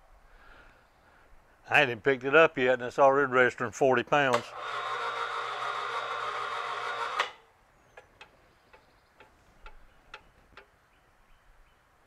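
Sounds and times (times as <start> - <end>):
electric hoist motor hum: 4.3 - 7.4
hoist stopping click: 4.3 - 7.4.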